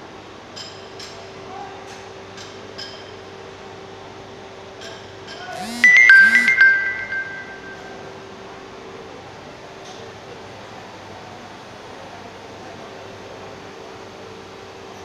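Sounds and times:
loud high signal tone: 0:05.6 - 0:08.2.

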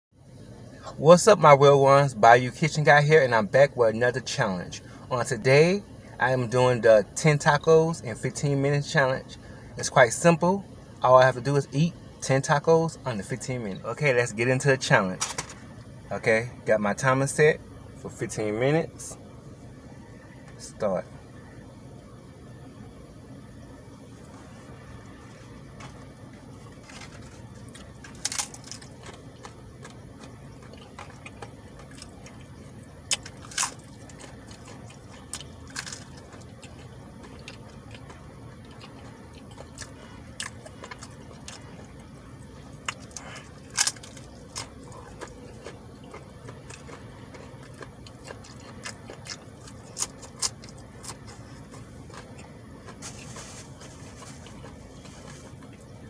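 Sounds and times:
low hum: 0:00.2 - 0:56.0
person chewing: 0:24.2 - 0:56.0.

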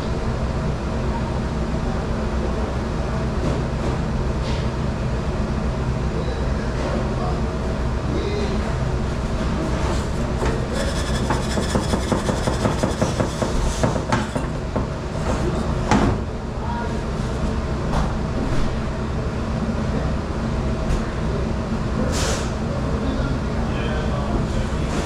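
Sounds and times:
dish-room machinery hum: 0:00.0 - 0:25.0
scouring pad scraping metal tin: 0:10.5 - 0:14.4.

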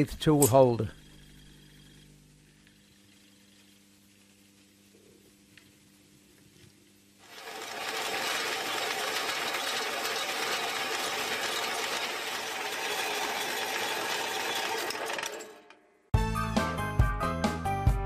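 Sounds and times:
bandsaw cutting steel: 0:07.3 - 0:15.8.

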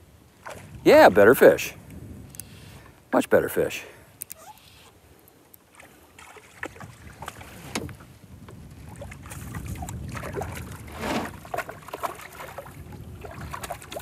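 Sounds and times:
fish thrashing and splashing: 0:08.9 - 0:14.0.

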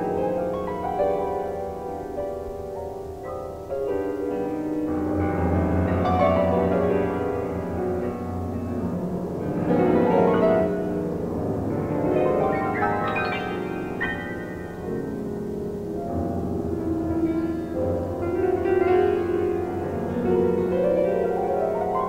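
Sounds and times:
solo grand piano: 0:00.0 - 0:22.0.

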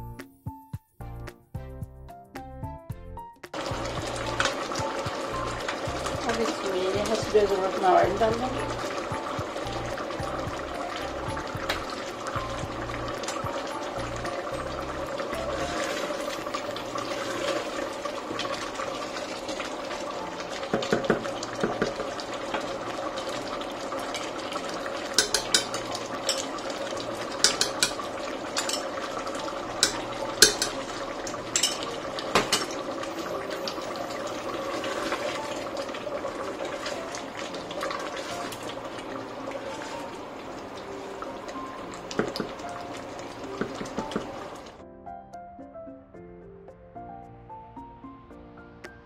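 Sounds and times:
food hissing as it fries: 0:03.6 - 0:44.8
wooden spoon scraping a pot: 0:15.5 - 0:17.8, 0:25.1 - 0:26.5, 0:27.4 - 0:29.0, 0:37.9 - 0:38.8
metal spoon tapping a bowl: 0:25.2 - 0:26.5, 0:27.4 - 0:28.0, 0:28.6 - 0:28.9, 0:29.8 - 0:30.8.

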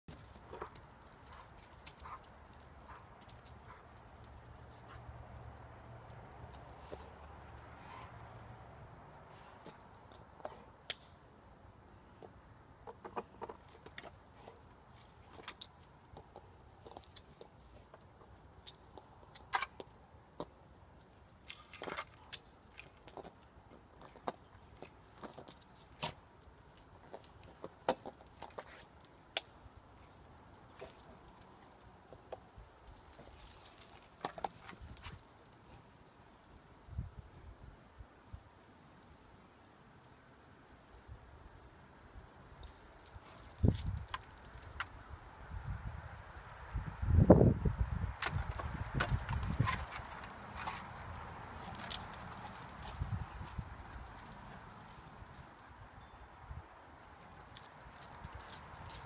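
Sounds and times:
collar tags jingling: 0:00.0 - 0:08.6, 0:21.0 - 0:36.4, 0:42.5 - 0:45.3, 0:47.5 - 0:59.0.

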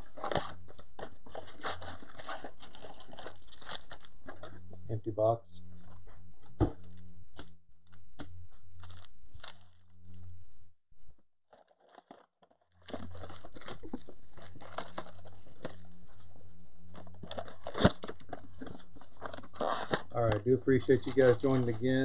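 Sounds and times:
cardboard packaging torn open: 0:00.0 - 0:04.5, 0:07.4 - 0:09.9, 0:11.5 - 0:15.9, 0:16.9 - 0:22.0
steady low hum: 0:00.0 - 0:11.2, 0:12.8 - 0:22.0.

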